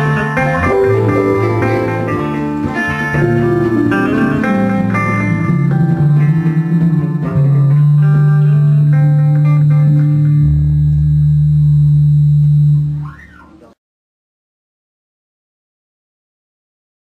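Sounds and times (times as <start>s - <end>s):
acoustic guitars playing: 0.0s - 12.0s.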